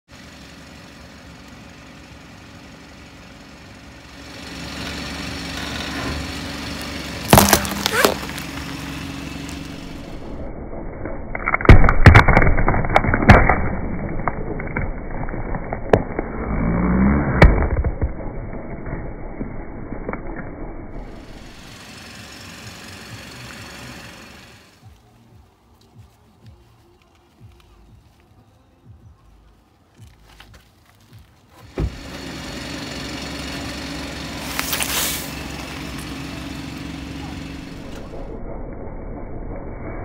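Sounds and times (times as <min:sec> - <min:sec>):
car creeping forward rumble: 0:00.0 - 0:10.6, 0:13.9 - 0:38.4
sharp cracks: 0:06.8 - 0:10.2, 0:11.3 - 0:21.7
pumpkin cracking and crunching: 0:07.3 - 0:09.9, 0:11.3 - 0:16.3, 0:34.4 - 0:36.1.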